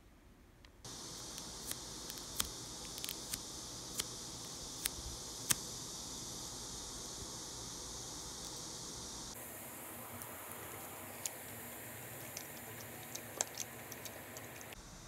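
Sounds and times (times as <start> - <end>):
steady high hiss: 0.0 - 15.0
cling film crinkling and clicking: 0.9 - 4.1, 10.1 - 14.8.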